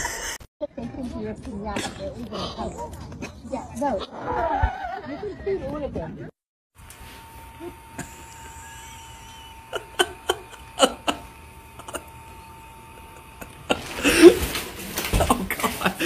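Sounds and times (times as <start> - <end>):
man laughing hard: 8.0 - 12.3, 13.0 - 14.5, 15.1 - 16.0.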